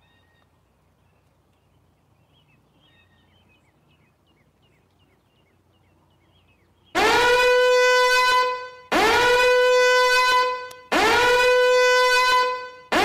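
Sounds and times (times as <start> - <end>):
timer alarm horn blasts: 7.0 - 13.0.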